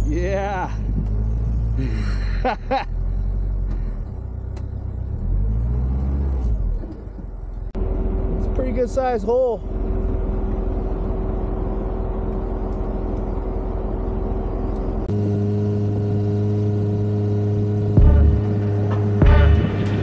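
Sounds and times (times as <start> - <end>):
truck engine low rumble: 0.0 - 20.0
heavy bass notes: 7.8 - 20.0
background music sustained chords: 16.4 - 20.0.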